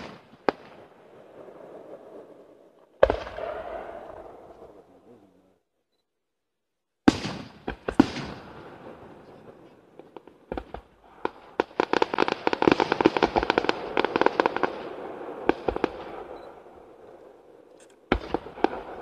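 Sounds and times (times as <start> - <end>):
fireworks bangs: 0.0 - 5.0, 7.0 - 19.0
rapid firework crackles: 9.5 - 16.4, 18.1 - 19.0.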